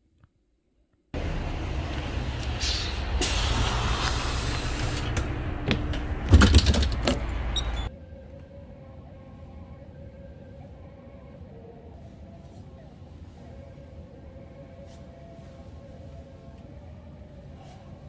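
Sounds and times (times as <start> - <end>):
bus engine rumbling: 1.2 - 7.9.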